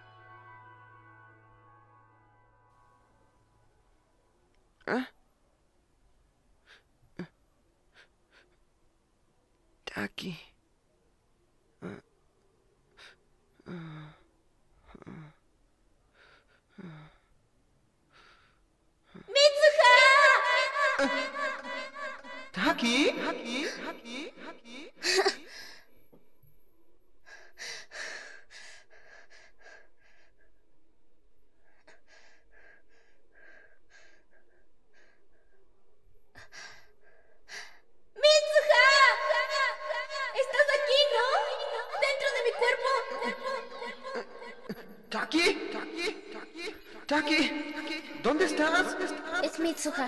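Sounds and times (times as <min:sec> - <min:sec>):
person panting out of breath: 0:27.2 - 0:30.7, 0:31.7 - 0:35.7.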